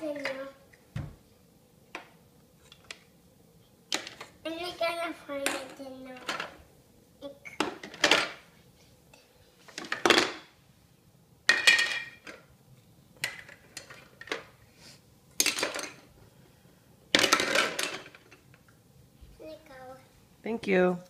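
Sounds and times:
plastic toys clattering: 5.4s - 6.6s, 7.6s - 8.5s, 9.7s - 10.5s, 11.5s - 12.5s, 13.2s - 14.5s, 15.4s - 16.1s, 17.1s - 18.5s.

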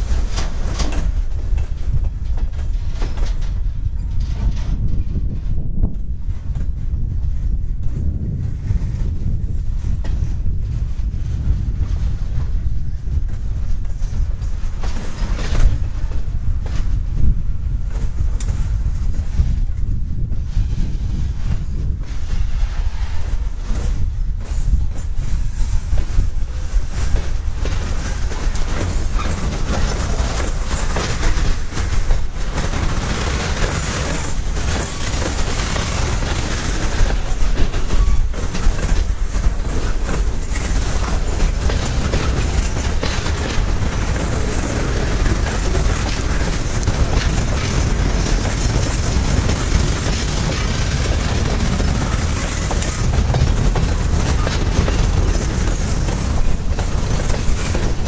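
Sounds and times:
steel wheels rumbling on rail: 0.0s - 58.0s
wheels knocking over rail joints: 24.4s - 58.0s.

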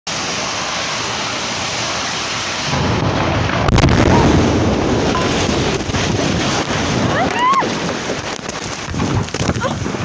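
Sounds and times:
steady rushing noise: 0.1s - 10.0s
deep rumbling boom: 2.6s - 10.0s
sharp crack: 2.7s - 9.7s.

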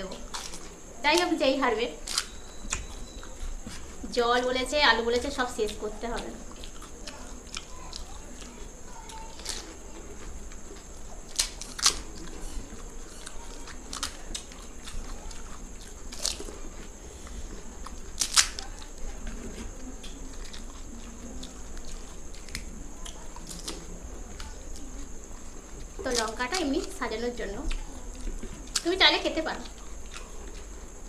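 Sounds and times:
crunching while eating: 0.0s - 31.0s
crisp shells cracking: 2.0s - 2.9s, 6.6s - 9.8s, 11.3s - 15.4s, 16.1s - 16.5s, 18.1s - 18.8s.

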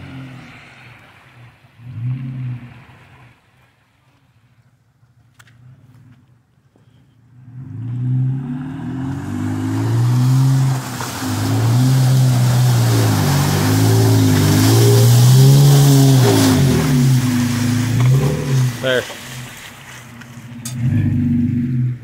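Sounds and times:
vehicle engine revving: 7.3s - 22.0s
wheels spinning in mud and water: 7.5s - 22.0s.

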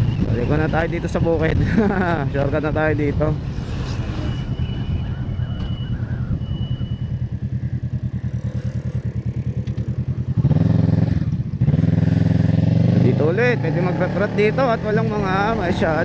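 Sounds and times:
motorcycle engine accelerating: 3.4s - 16.0s.

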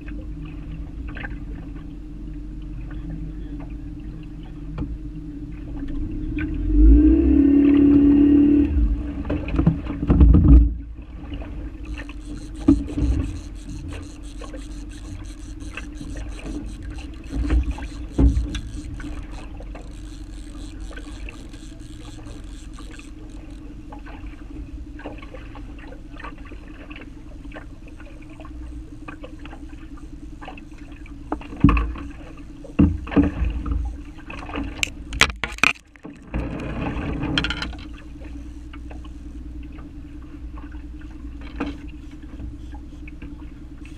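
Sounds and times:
fast fine clicking: 11.8s - 23.7s
boat motor idling: 11.8s - 25.8s.

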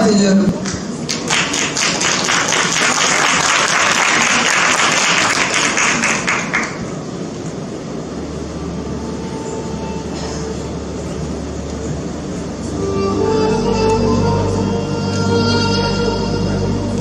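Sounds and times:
low steady hum: 0.0s - 17.0s
audience applauding: 0.7s - 7.2s.

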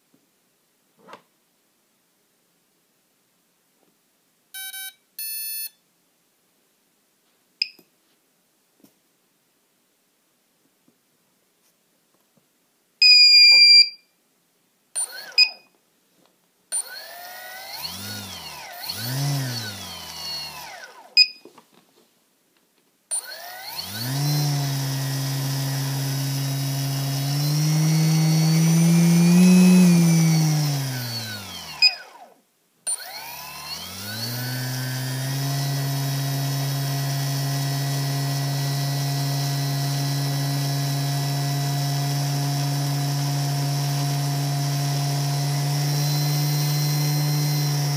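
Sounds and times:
short electronic beeps: 4.6s - 5.8s, 13.0s - 14.0s
electric motor whine: 16.8s - 21.2s, 23.2s - 47.9s.

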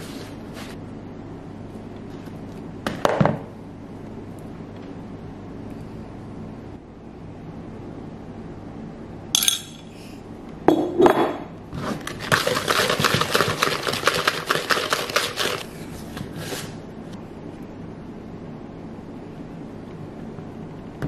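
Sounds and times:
sharp clink: 9.4s - 9.9s
whisk beating in a bowl: 11.8s - 15.7s.

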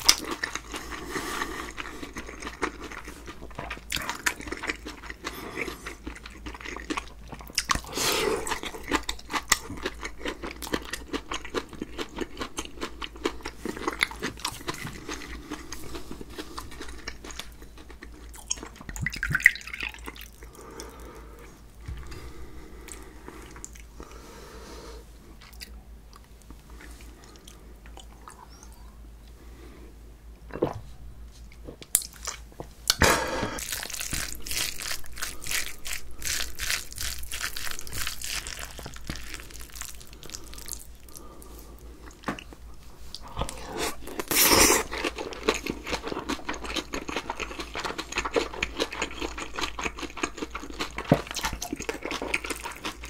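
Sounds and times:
wet chewing and crunching: 0.0s - 22.1s, 33.6s - 53.0s.

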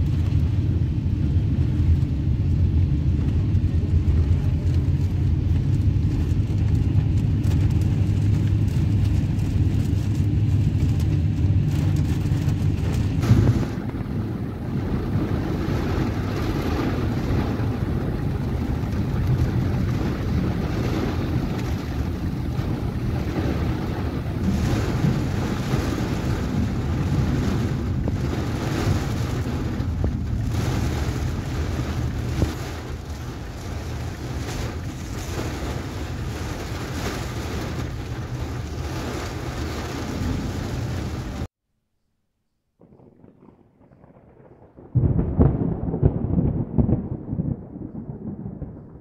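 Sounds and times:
heavy rain: 0.0s - 41.5s, 44.1s - 49.0s
tyres running through water: 4.1s - 41.5s.

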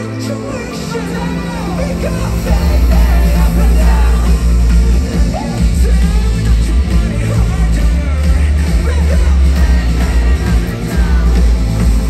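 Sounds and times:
live rock band playing: 0.0s - 12.0s
person singing: 0.0s - 12.0s.

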